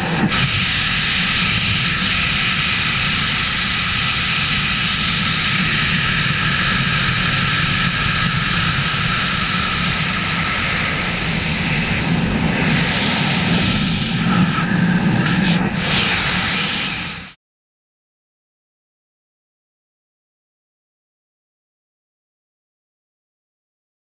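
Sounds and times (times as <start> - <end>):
wind rushing over camera: 0.0 - 17.4.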